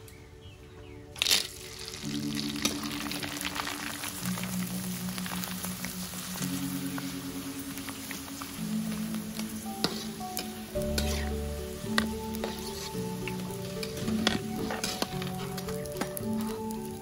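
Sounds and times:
crackers sizzling in hot oil: 1.2s - 17.0s
metal spatula stirring: 9.7s - 16.2s.

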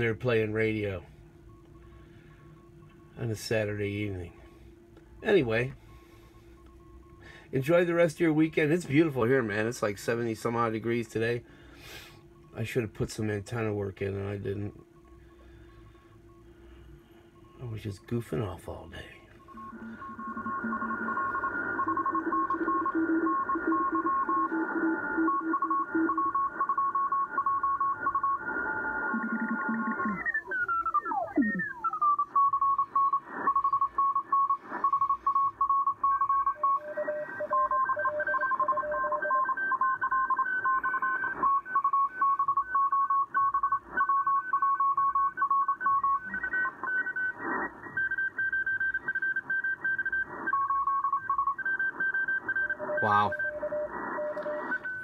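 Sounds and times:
morse code beeping tones: 12.0s - 28.5s, 29.1s - 55.0s
radio tones gliding downward: 28.0s - 35.6s.

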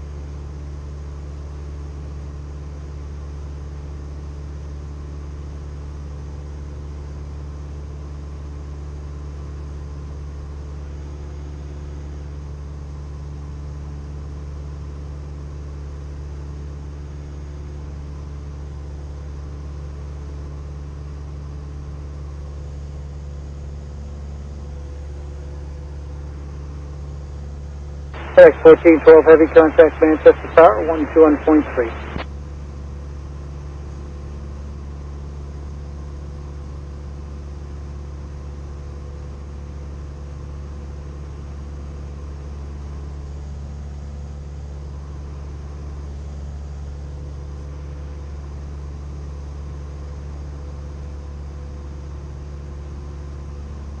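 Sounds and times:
light aircraft engine drone: 21.1s - 32.2s.

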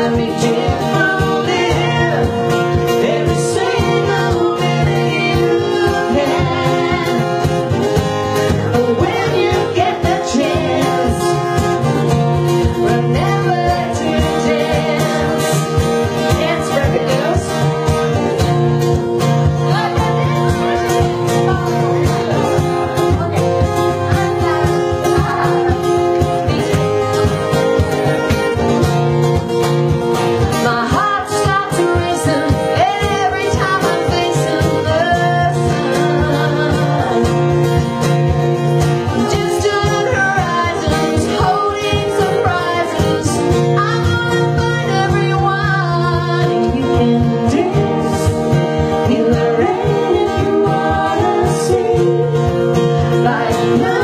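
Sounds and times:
woman singing: 0.0s - 28.8s, 30.4s - 54.0s
acoustic guitar: 0.0s - 54.0s.

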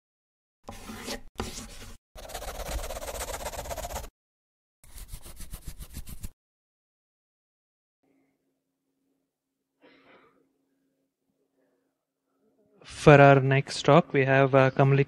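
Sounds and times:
marker scribble effect: 0.7s - 4.1s, 4.8s - 6.4s.

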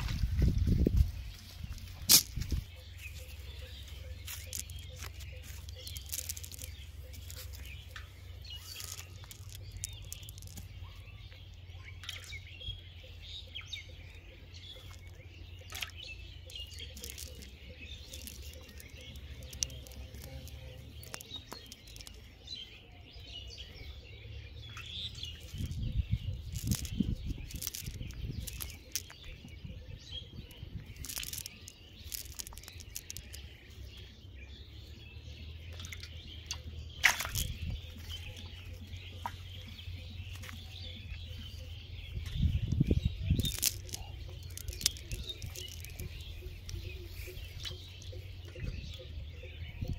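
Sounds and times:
small birds chirping: 0.0s - 49.9s
net rustling and clicking: 1.7s - 10.8s, 14.8s - 22.3s, 25.1s - 29.4s, 30.5s - 33.5s, 37.0s - 39.7s, 42.2s - 48.7s.

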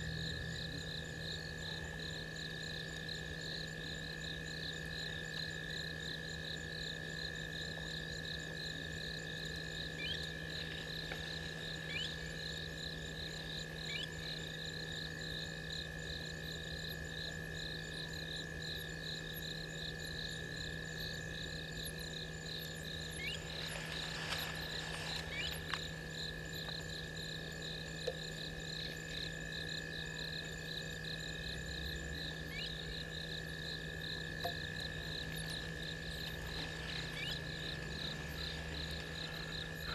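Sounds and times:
steady droning calls: 9.6s - 14.6s, 20.6s - 27.6s, 30.0s - 39.9s.

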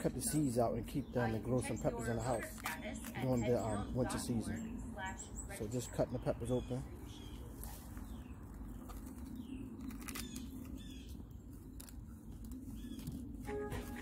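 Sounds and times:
birds chirping: 0.0s - 14.0s
music: 13.4s - 14.0s.

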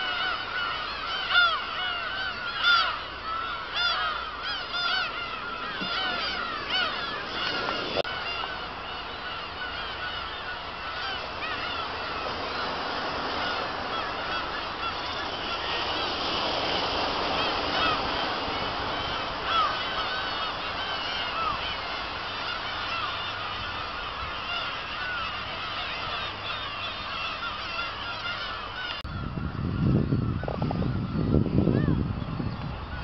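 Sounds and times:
gulls calling: 0.0s - 33.0s.

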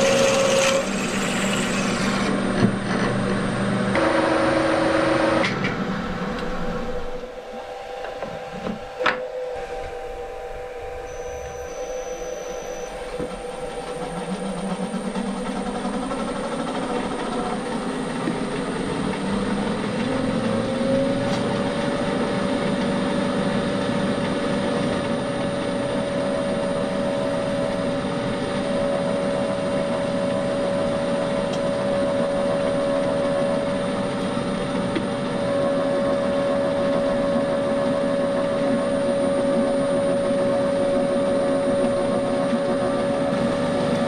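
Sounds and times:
milling machine drilling metal: 0.0s - 2.6s.

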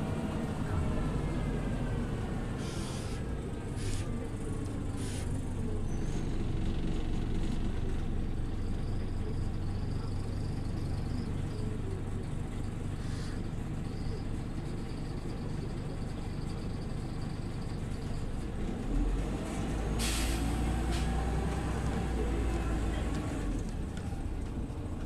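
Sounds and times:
bus engine drone: 0.0s - 25.0s
short air hisses: 2.6s - 3.2s, 20.0s - 20.5s.

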